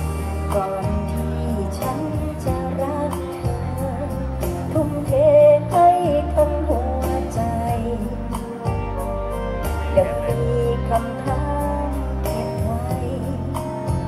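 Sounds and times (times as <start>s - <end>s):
woman singing into microphone: 0.0s - 9.0s, 9.6s - 14.0s
steady bass: 0.0s - 14.0s
drum beats: 7.0s - 11.7s.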